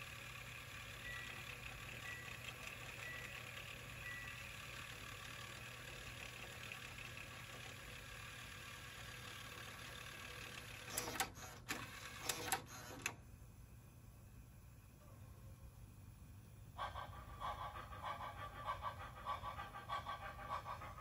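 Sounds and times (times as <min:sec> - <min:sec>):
cassette deck tape whir: 0:00.0 - 0:13.3
tape transport mechanical clicks: 0:10.8 - 0:13.2.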